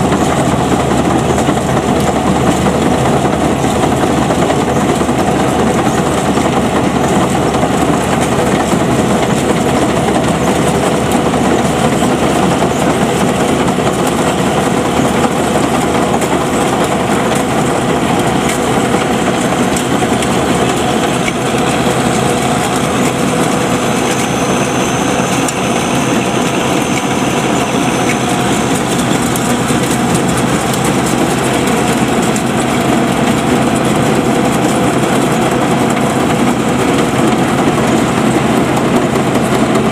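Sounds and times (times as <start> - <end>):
harvester engine running: 0.0 - 39.9.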